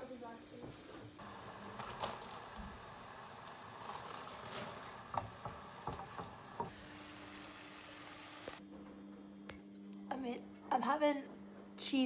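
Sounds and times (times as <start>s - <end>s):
meat sizzling in a frying pan: 1.2s - 8.6s
wooden spatula knocking a pan: 5.1s - 6.8s.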